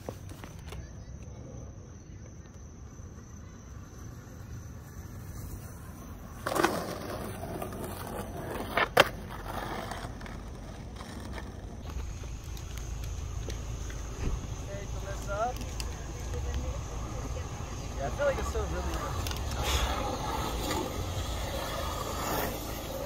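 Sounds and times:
skateboard rasp: 0.0 - 1.6, 3.8 - 12.2, 18.4 - 23.0
skateboard wheels rolling on asphalt: 0.0 - 23.0
skateboard clacking on pavement: 6.2 - 23.0.

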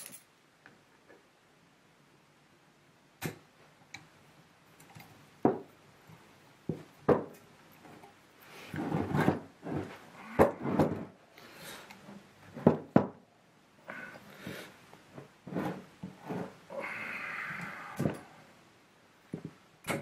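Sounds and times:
tools rubbing and scraping: 7.8 - 11.2, 15.4 - 16.7.

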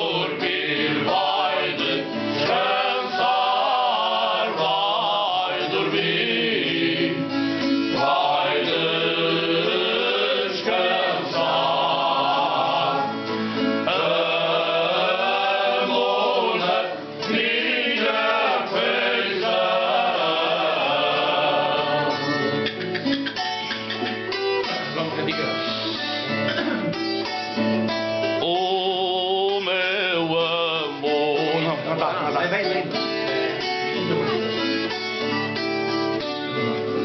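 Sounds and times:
men singing folk song: 0.0 - 22.9, 28.4 - 31.9
guitar strummed and plucked: 0.0 - 37.0.

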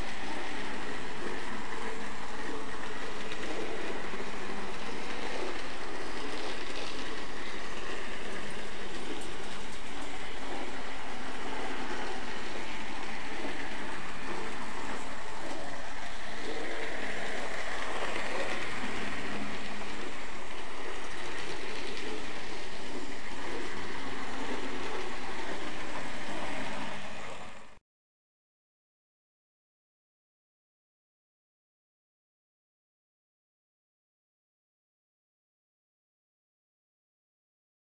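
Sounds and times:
model train running on track: 0.0 - 27.8.

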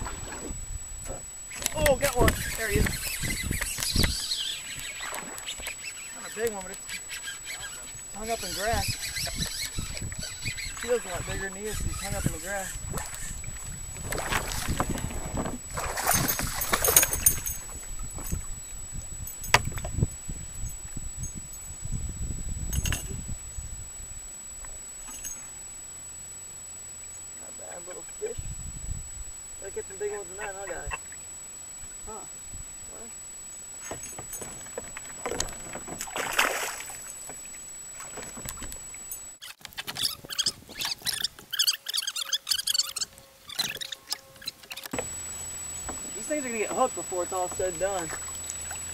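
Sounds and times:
wind rumbling on microphone: 0.0 - 5.6, 7.6 - 25.0, 28.2 - 31.1, 31.7 - 33.1
water splashing around kayak: 1.7 - 18.5, 34.6 - 39.1, 44.9 - 48.9
water splashing and sloshing: 12.0 - 18.5, 33.8 - 48.9.

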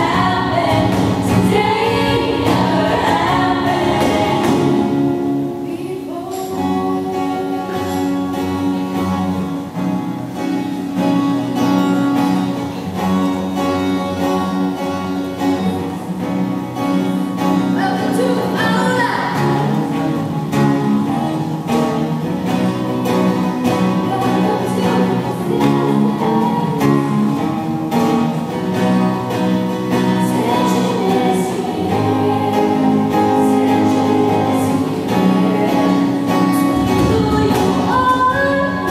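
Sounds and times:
women singing in harmony: 0.0 - 9.2, 23.7 - 27.4, 29.8 - 38.9
guitar: 0.0 - 38.9.

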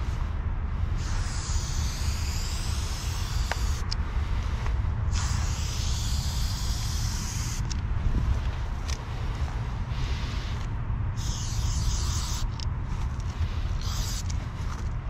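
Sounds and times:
steady low rumble: 0.0 - 15.0
spray paint can hissing: 1.0 - 4.0, 5.1 - 7.8, 11.2 - 12.7, 13.6 - 14.4.

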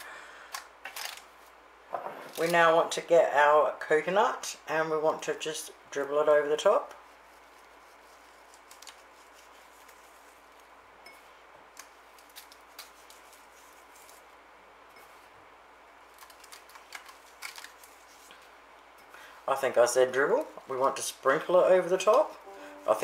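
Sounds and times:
low room hiss: 0.0 - 23.0
fingers sprinkling coconut: 6.9 - 15.4, 16.0 - 18.6.

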